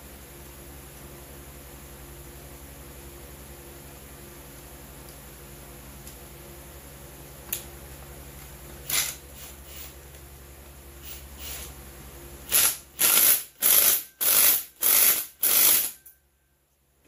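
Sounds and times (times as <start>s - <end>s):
ratchet clicking: 12.5s - 16.1s.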